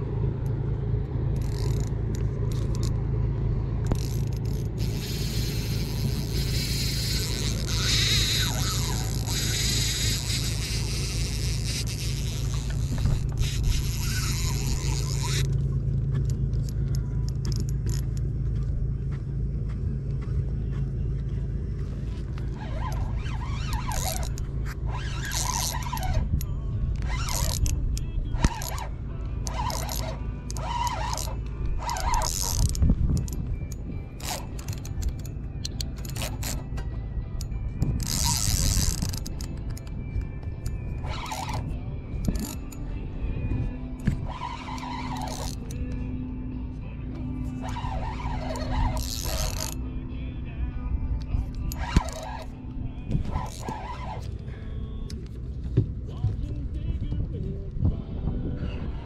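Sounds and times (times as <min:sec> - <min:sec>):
background music: 0:00.0 - 0:59.0
short clicks and scrapes: 0:28.4 - 0:28.9, 0:44.0 - 0:46.0, 0:47.4 - 0:49.8, 0:51.2 - 0:55.4.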